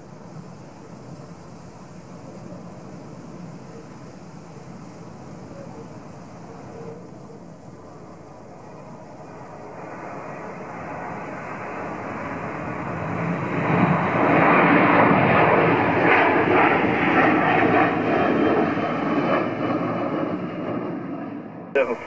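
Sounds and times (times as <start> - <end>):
jet engines roaring: 0.0 - 22.0.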